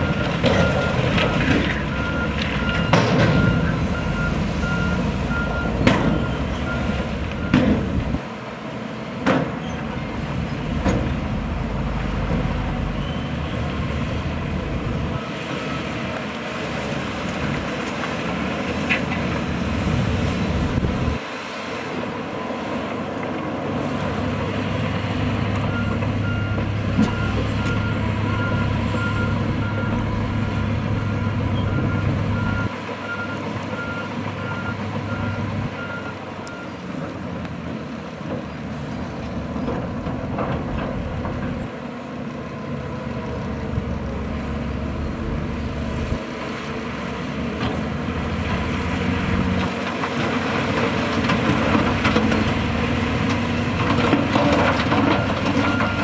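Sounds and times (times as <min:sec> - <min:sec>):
reversing alarm beeping: 0:00.0 - 0:07.8, 0:25.7 - 0:36.7, 0:55.0 - 0:56.0
diesel engines running: 0:00.0 - 0:56.0.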